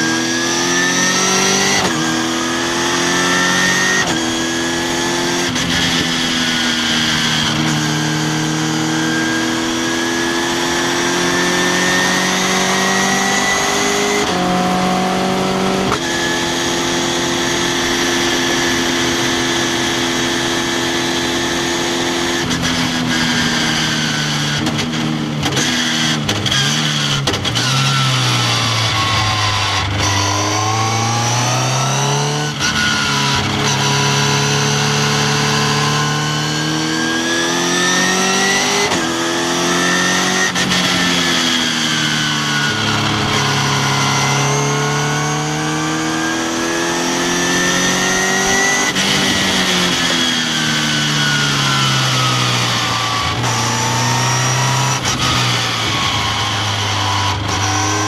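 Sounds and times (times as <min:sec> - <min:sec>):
sports car engine accelerating: 0:00.0 - 0:58.0.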